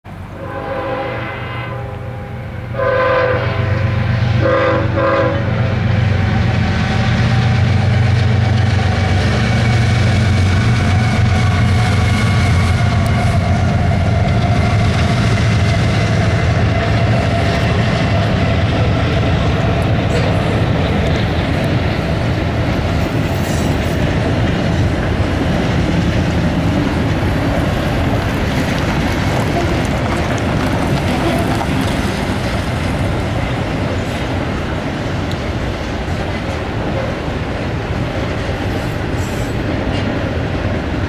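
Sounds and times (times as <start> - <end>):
locomotive air horn blasts: 0.3 - 5.8
diesel engines droning: 3.5 - 41.0
freight cars rumbling by: 5.4 - 41.0.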